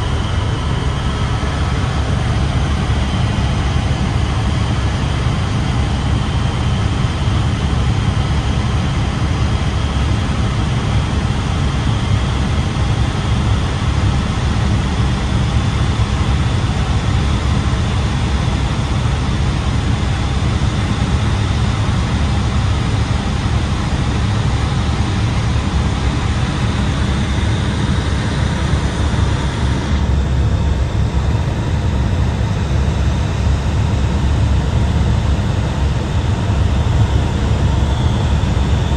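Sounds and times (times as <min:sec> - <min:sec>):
small aircraft cabin drone: 0:00.0 - 0:38.9.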